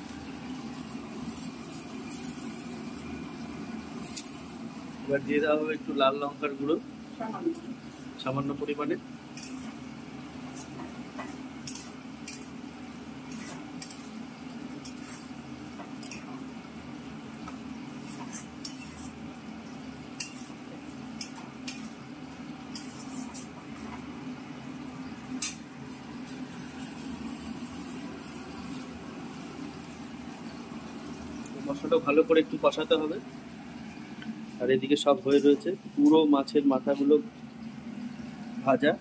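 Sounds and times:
paste frying: 0.0 - 39.0
metal spatula scraping a pan: 9.4 - 9.8, 10.5 - 12.5, 13.3 - 14.2, 14.8 - 15.4, 16.0 - 16.3, 17.9 - 19.2, 20.2 - 20.6, 21.2 - 22.0, 22.7 - 23.6.

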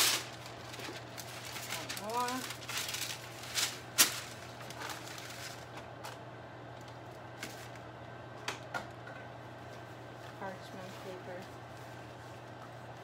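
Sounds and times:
parchment paper rustling: 0.0 - 6.2
steady low hum: 0.0 - 13.0.

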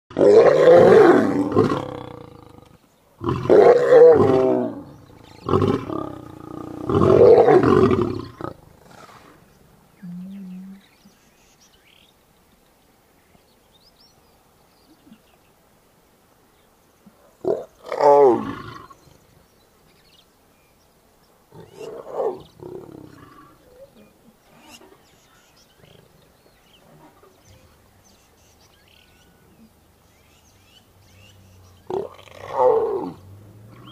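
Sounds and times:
lioness snarling and roaring: 0.1 - 9.4, 17.4 - 19.1, 21.5 - 23.8, 31.8 - 33.9.

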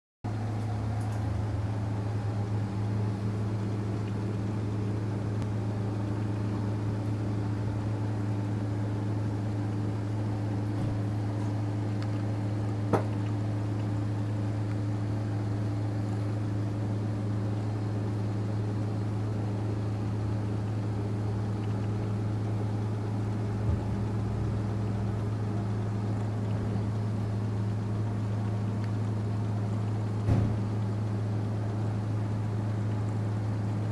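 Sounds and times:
motor humming: 0.3 - 33.9.

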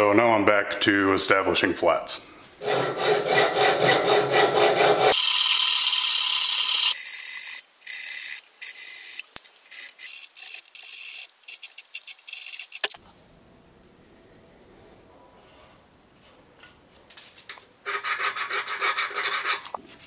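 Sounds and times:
file rasping on steel blade: 2.6 - 5.2.

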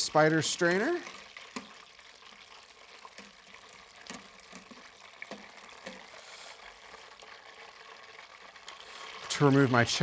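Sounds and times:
food deep-frying in oil: 0.0 - 10.0
strainer clicking in oil: 0.1 - 6.7.

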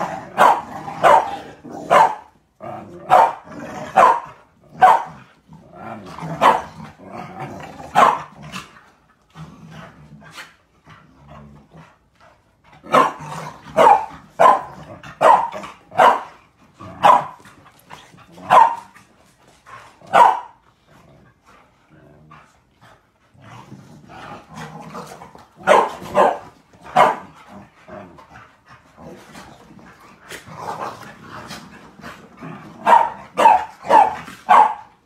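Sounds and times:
dogs barking: 0.0 - 2.3, 3.1 - 5.2, 6.4 - 6.7, 7.9 - 8.3, 12.9 - 16.3, 16.9 - 17.4, 18.4 - 18.9, 20.1 - 20.6, 25.6 - 27.3, 32.8 - 35.0
dogs growling: 0.0 - 35.0.

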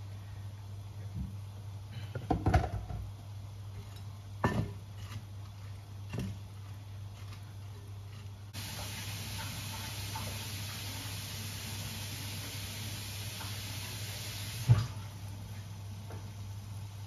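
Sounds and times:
steady hiss: 8.5 - 17.0.

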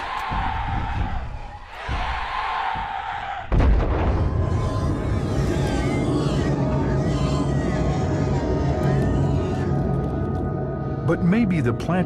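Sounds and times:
documentary background music: 3.9 - 12.0.

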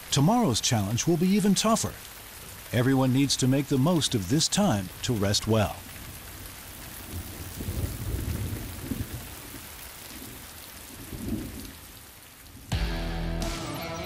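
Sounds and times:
heavy rain pouring: 0.0 - 14.0
low rumble of thunder: 7.0 - 11.8.

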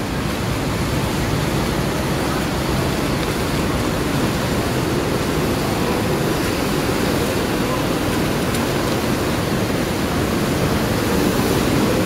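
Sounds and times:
coach engine and tyre noise: 0.0 - 12.0.

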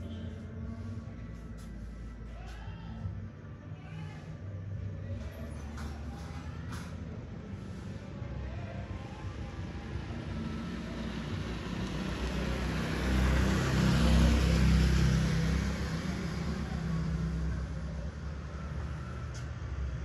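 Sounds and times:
motorbike passing: 10.0 - 20.0.

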